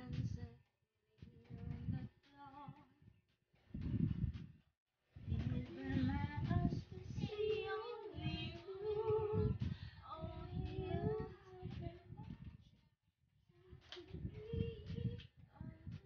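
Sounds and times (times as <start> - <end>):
woman singing: 5.2 - 12.4, 13.7 - 16.0.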